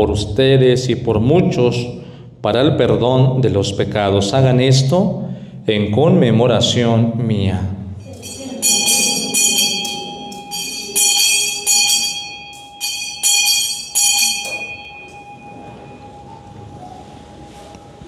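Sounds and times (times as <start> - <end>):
altar bells ringing: 8.0 - 17.6.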